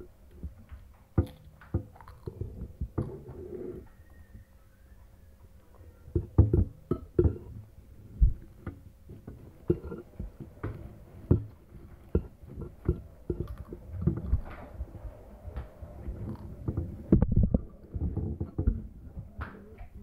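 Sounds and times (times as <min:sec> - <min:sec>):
spoon scraping ceramic bowl: 0:09.2 - 0:13.8.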